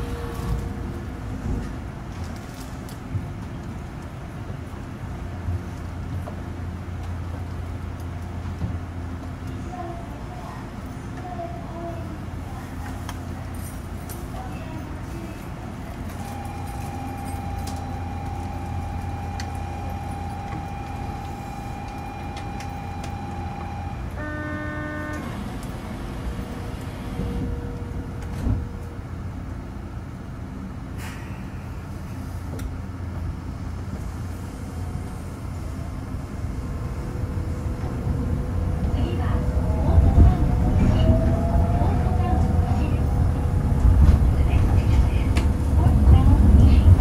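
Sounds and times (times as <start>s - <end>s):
train equipment humming: 0.0s - 47.0s
long electronic tone: 16.2s - 25.5s.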